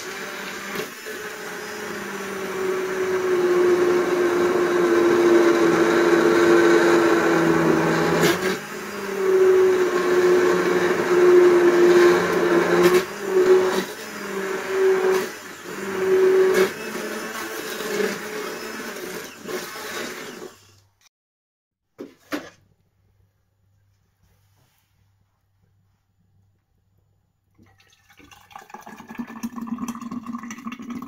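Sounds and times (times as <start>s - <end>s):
immersion blender motor: 0.0s - 21.0s.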